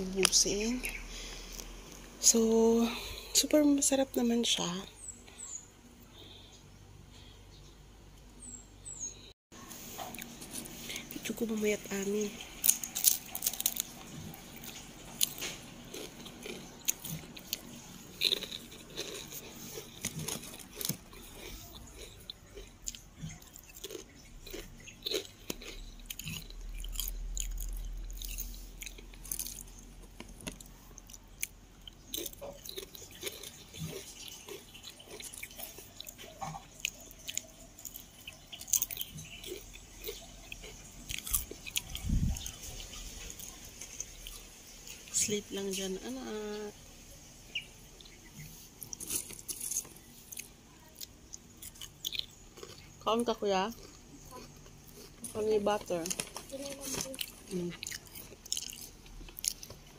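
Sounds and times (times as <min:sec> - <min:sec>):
potato chips crunching: 0:10.0 - 0:45.2, 0:48.3 - 0:59.9.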